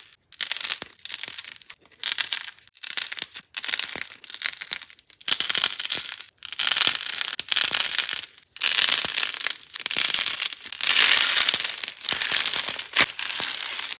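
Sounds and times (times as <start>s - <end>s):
dried paint crackling: 5.7s - 14.0s.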